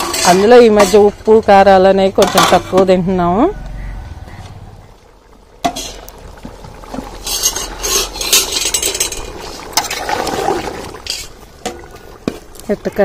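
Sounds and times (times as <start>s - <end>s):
curry bubbling and spluttering: 3.8s - 13.0s.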